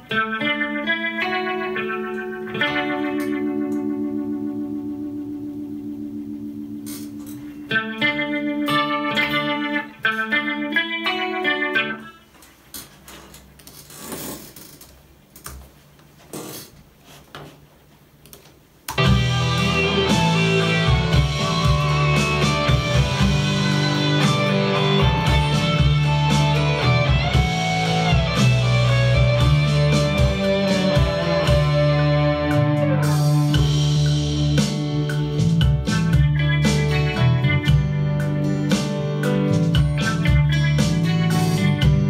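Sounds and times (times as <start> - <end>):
electric guitar playing: 0.0 - 12.6, 18.9 - 42.0
backing track with piano and bass: 18.9 - 42.0.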